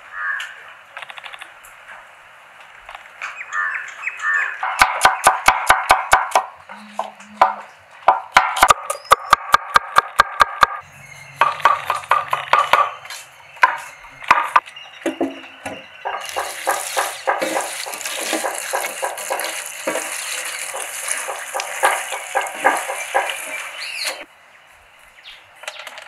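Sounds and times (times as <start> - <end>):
herb leaves rustling: 16.1 - 24.2.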